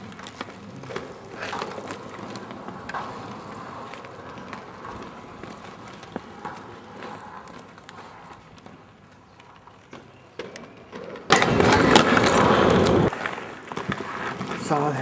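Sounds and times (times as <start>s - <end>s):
clicks and scuffs: 0.0s - 11.2s
skate wheels rolling on asphalt: 0.0s - 15.0s.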